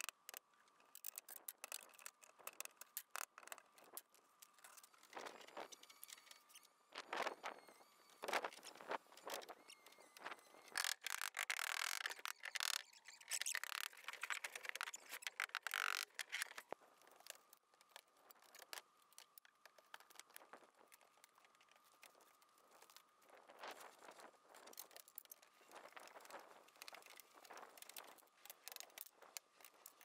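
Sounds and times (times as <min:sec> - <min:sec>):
faint high whine: 0:03.8 - 0:15.4.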